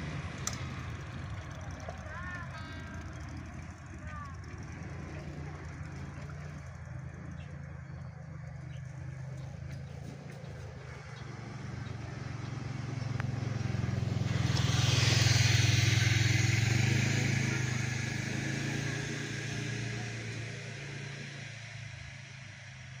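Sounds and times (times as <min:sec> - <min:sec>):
diesel train engine drone: 0:00.0 - 0:23.0
passing motor vehicle hiss: 0:09.1 - 0:22.9.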